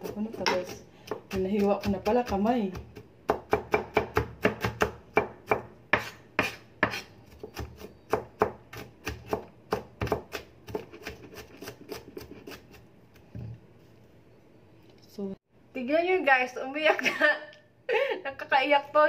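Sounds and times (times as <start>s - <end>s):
knife chopping on cutting board: 0.0s - 13.6s.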